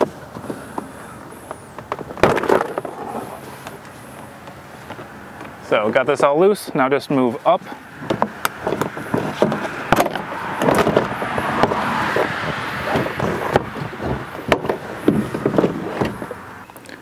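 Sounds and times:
scraping and rustling: 6.6 - 16.6.

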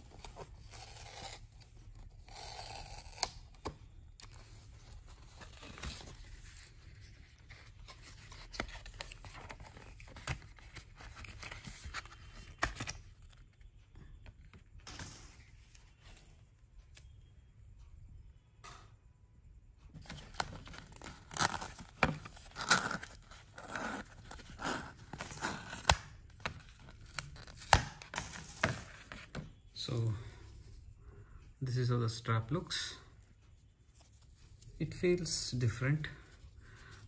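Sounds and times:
cardboard packaging rustling: 4.2 - 13.4, 20.0 - 29.6.

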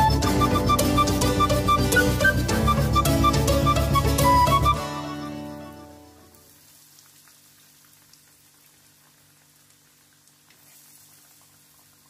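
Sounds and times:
food sizzling in oil: 6.2 - 12.0
small crackles: 6.5 - 12.0.

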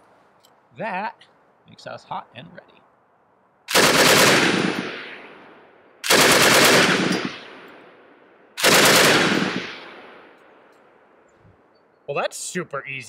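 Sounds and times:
machine gun bursts: 3.7 - 4.8, 6.0 - 7.4, 8.6 - 9.7
gunfire echo: 3.7 - 10.7.

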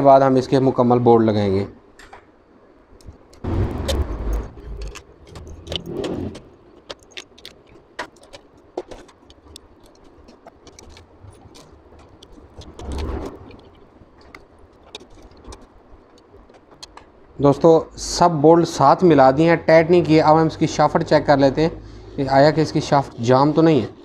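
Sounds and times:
handling noises: 3.0 - 17.4.

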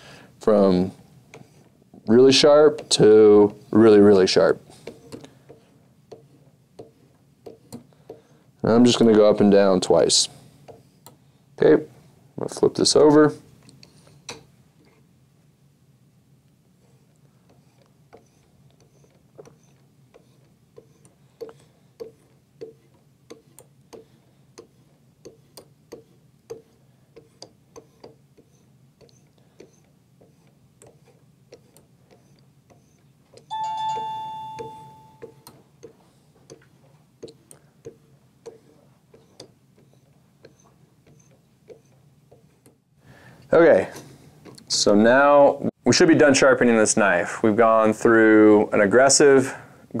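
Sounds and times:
metallic ring: 33.5 - 35.4.

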